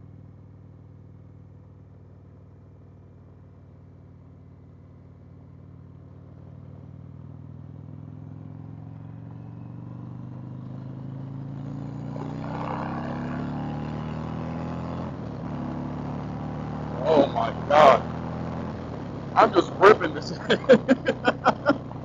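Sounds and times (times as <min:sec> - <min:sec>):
motorcycle engine accelerating: 0:05.4 - 0:22.0.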